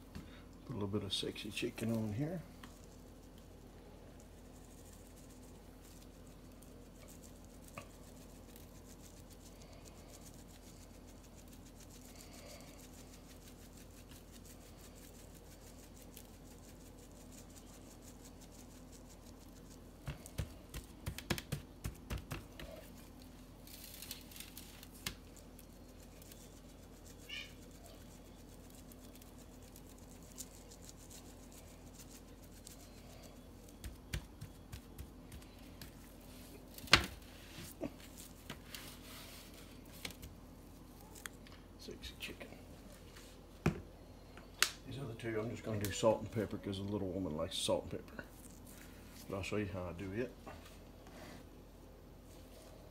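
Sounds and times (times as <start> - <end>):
faint steady hum: 0.0 - 52.9
seasoning shaker rattling: 2.5 - 23.2.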